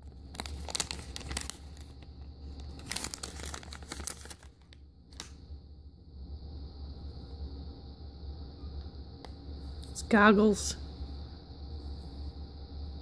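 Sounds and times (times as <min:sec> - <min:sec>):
plastic bag tearing and crinkling: 0:00.0 - 0:05.4.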